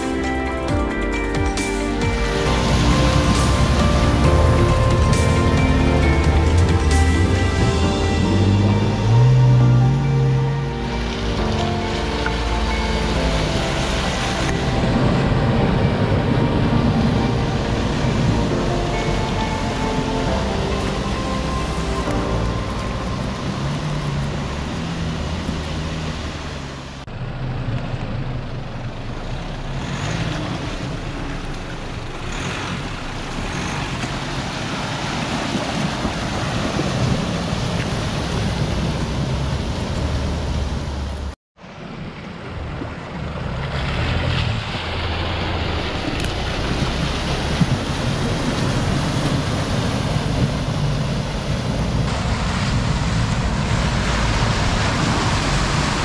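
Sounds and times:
floodwater rushing and splashing: 0:00.0 - 0:56.0
vehicle engines running: 0:00.0 - 0:56.0.

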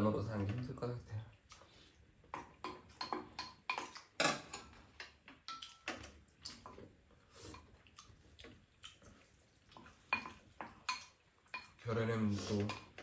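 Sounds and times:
chewing: 0:01.3 - 0:02.0, 0:05.0 - 0:11.8
utensils clicking on ceramic bowls: 0:02.3 - 0:06.8.

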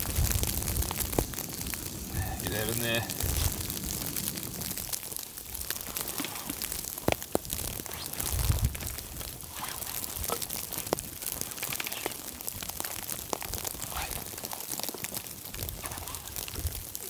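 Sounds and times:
steady hiss: 0:00.0 - 0:17.0
twigs clicking and crunching: 0:00.0 - 0:17.0.

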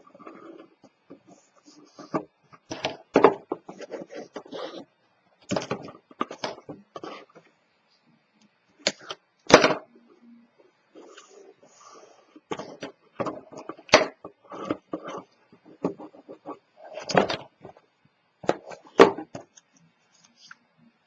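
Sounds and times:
cardstock rustling and scraping: 0:00.0 - 0:04.8, 0:11.0 - 0:17.8.

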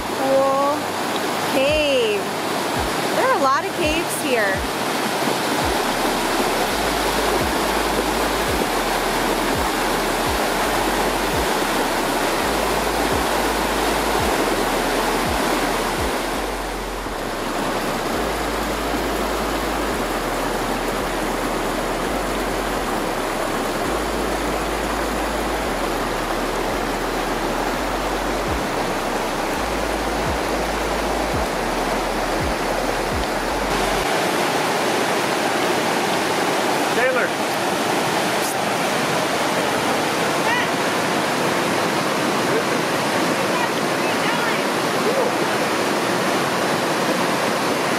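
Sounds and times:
river rushing over rapids: 0:00.0 - 0:47.9.

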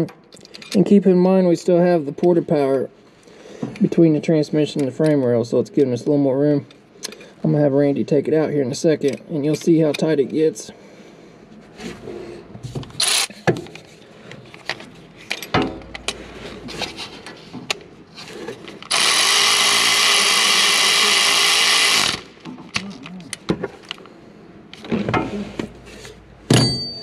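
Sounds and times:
tools clinking and knocking: 0:14.6 - 0:16.9, 0:26.5 - 0:27.0
cordless power tool running: 0:18.8 - 0:22.4.

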